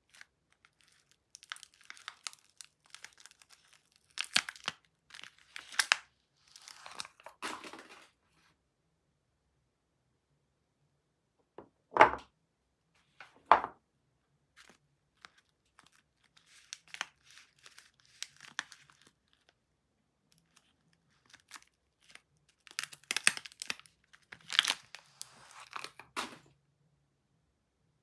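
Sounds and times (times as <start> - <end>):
paper wrapper tearing and crinkling: 0.0 - 8.1, 14.6 - 19.5, 20.3 - 26.5.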